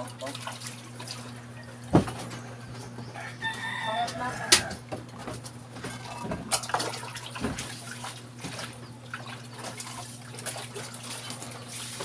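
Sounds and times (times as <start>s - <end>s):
water running and splashing: 0.0s - 1.4s, 5.9s - 12.0s.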